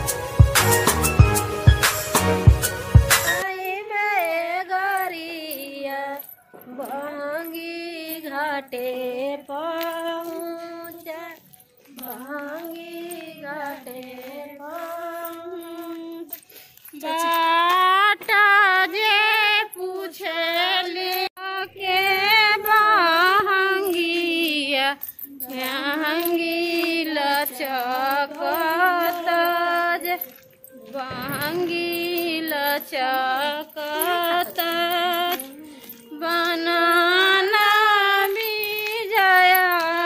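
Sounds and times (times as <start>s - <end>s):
backing music: 0.0s - 3.4s, 31.0s - 32.8s
woman singing devotional song: 3.4s - 40.0s.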